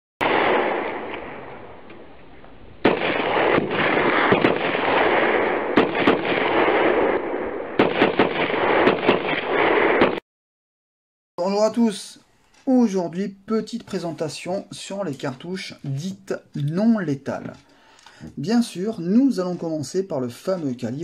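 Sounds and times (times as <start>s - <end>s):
explosion bang: 0.2s - 2.1s, 2.8s - 10.2s
rumbling gunfire din with cracks: 0.2s - 2.1s, 2.8s - 10.2s.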